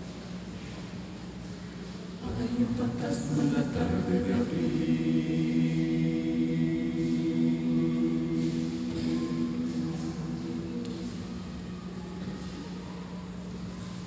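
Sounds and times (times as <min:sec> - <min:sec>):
choir singing a cappella: 0:02.2 - 0:11.7.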